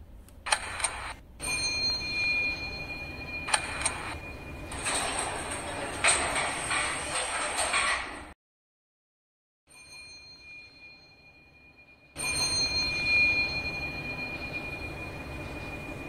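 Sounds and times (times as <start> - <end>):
high ringing tone: 0.5 - 5.3, 9.7 - 16.0.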